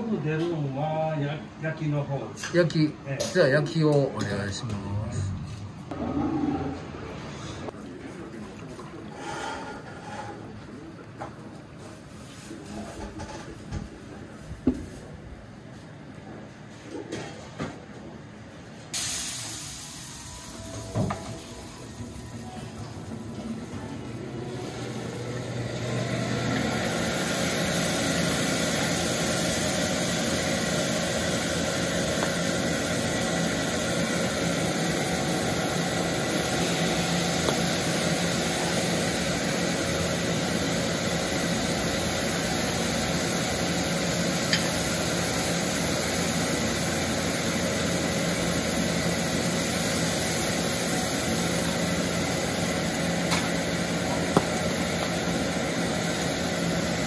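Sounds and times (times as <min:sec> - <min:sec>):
meat sizzling on a griddle: 0:19.0 - 0:22.2, 0:26.4 - 0:57.0.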